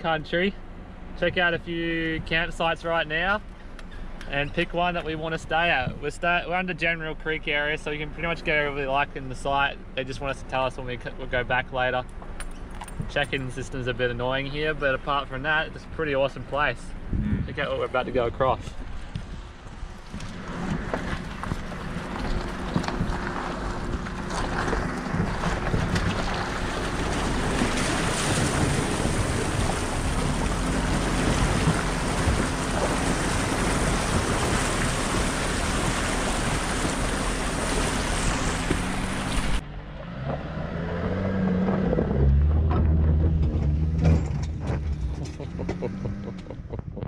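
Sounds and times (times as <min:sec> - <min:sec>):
water rushing and splashing: 0:20.0 - 0:39.6
vehicle engine revving: 0:20.1 - 0:47.0.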